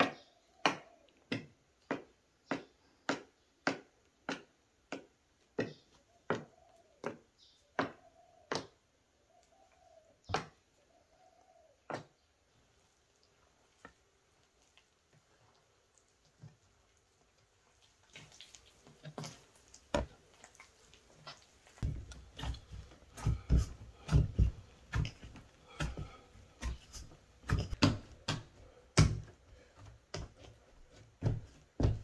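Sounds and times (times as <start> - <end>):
hands kneading dough: 11.8 - 32.0.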